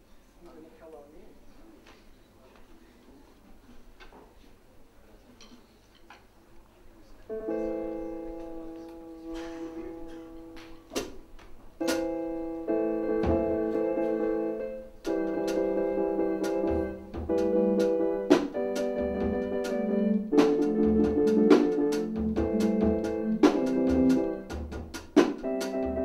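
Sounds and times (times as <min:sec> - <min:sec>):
electric piano chords: 0:07.3 - 0:26.0
drum and cymbal hits: 0:11.8 - 0:12.4, 0:15.0 - 0:26.0.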